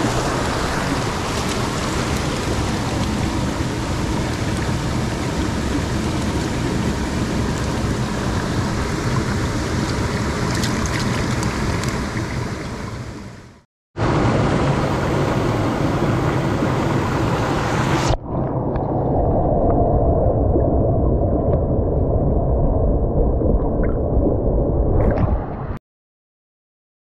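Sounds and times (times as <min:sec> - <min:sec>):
river water rushing: 0:00.0 - 0:12.9.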